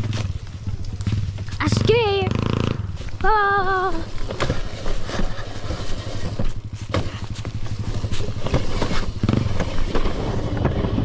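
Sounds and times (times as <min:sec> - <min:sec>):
dirt bike engine running: 0:00.0 - 0:11.0
knocks and rattles: 0:04.0 - 0:11.0.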